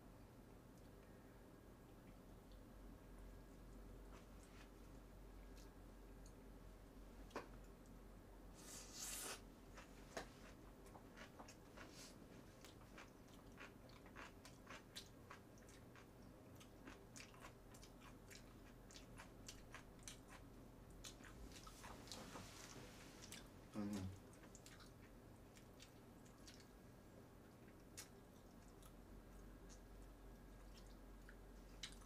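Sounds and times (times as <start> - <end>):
person chewing food: 9.1 - 32.0.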